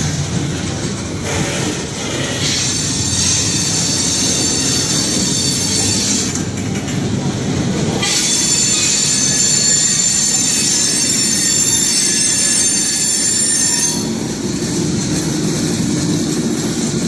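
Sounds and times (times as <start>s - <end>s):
freight train rumbling past: 0.0s - 17.0s
train wheels squealing: 1.3s - 6.5s, 8.0s - 15.6s.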